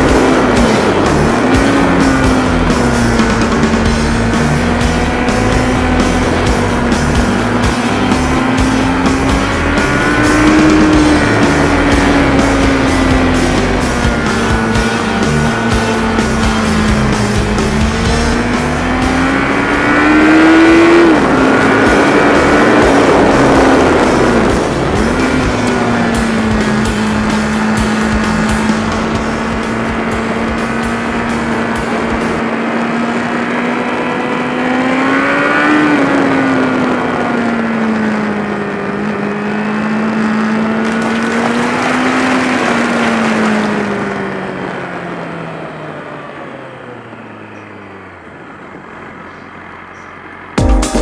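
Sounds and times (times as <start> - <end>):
motorcycle engine cruising: 0.0 - 51.0
wind rush on microphone: 18.4 - 34.6.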